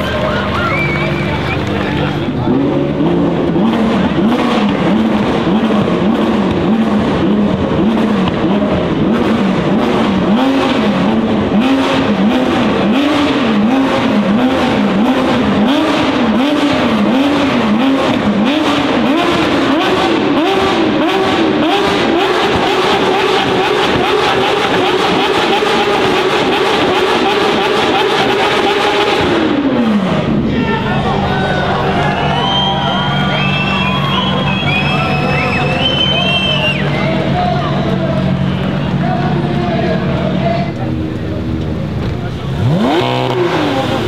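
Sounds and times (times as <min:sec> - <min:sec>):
car engine revving: 0:00.0 - 0:44.0
exhaust crackle and pops: 0:00.2 - 0:30.3, 0:40.2 - 0:44.0.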